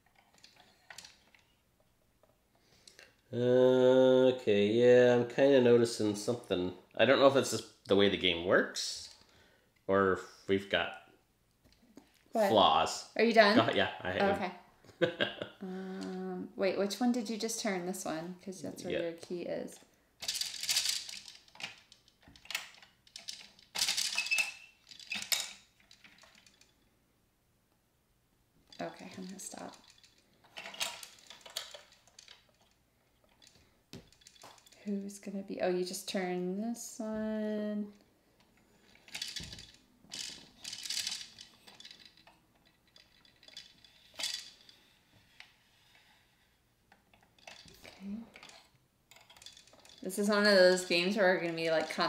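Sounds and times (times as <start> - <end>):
plastic gears clicking and clattering: 0.0 - 1.6, 19.2 - 26.8, 28.7 - 34.8, 38.5 - 52.0.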